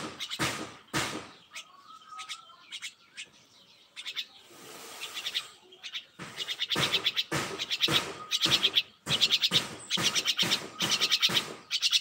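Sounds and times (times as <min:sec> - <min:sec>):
myna chirping: 0:00.0 - 0:12.0
loud scraping rustles: 0:04.4 - 0:05.5.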